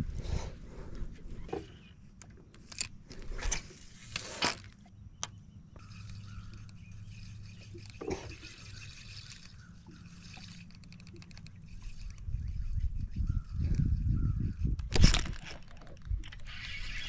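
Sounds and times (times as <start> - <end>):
fishing reel ticking: 5.8 - 17.0
water lapping against boat: 6.3 - 11.9.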